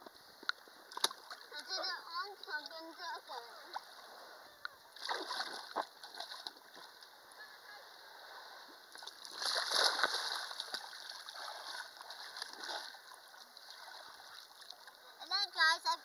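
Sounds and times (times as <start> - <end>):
splashing while swimming: 5.0 - 6.6, 9.1 - 14.7
loud splash into water: 9.3 - 10.8.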